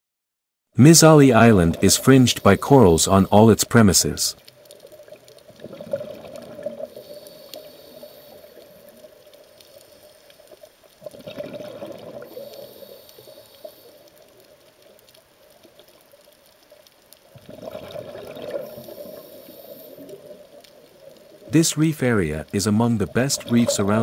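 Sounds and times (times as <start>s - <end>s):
muffled underwater bubbling: 1.1s - 9.7s, 10.9s - 14.6s, 17.3s - 24.0s.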